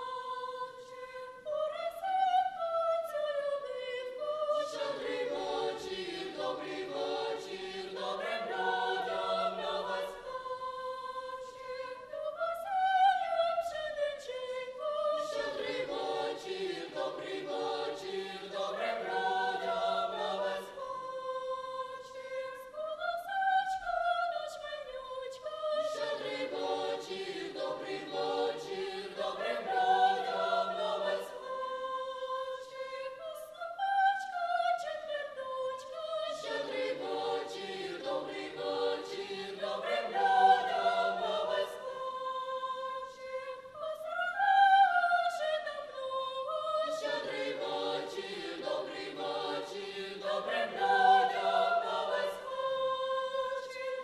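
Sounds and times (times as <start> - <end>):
children's choir singing: 0.0 - 54.0.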